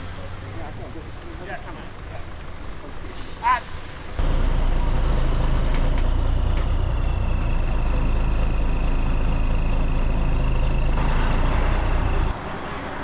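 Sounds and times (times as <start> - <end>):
lorry diesel engine running: 3.8 - 12.9.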